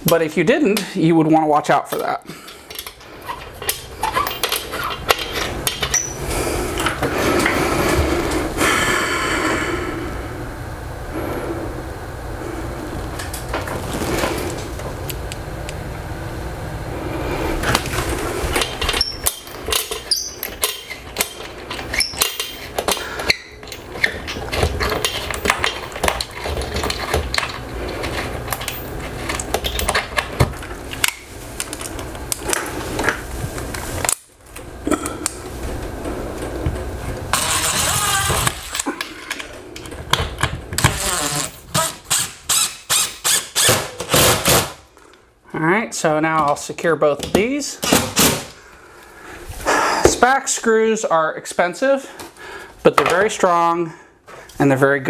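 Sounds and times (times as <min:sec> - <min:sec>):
power drill drilling into wall: 0:37.3 - 0:38.6, 0:40.8 - 0:44.8.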